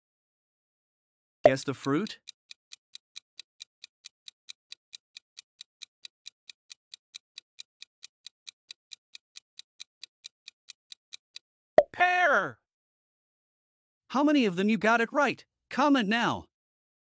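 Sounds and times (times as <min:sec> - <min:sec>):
clock ticking: 0:01.5 - 0:11.5.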